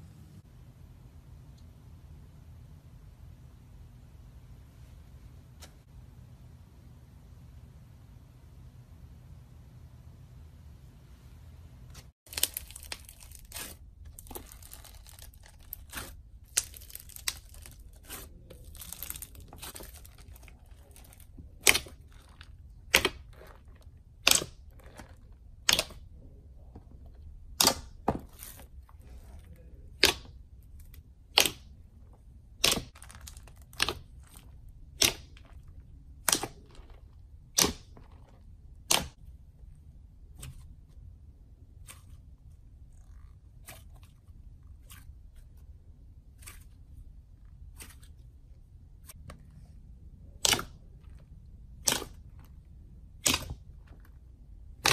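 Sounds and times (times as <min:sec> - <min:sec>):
foam slime crackling: 0:12.3 - 0:25.8.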